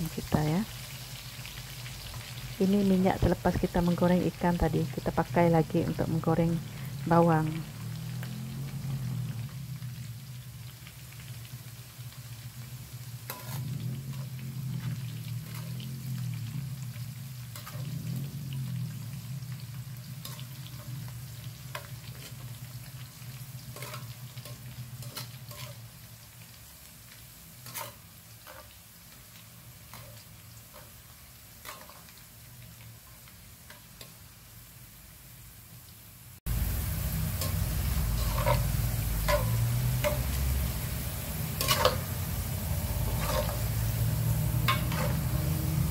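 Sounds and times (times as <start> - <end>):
onions sizzling in hot oil: 0.0 - 45.9
metal spoon clicking in wok: 39.3 - 40.4.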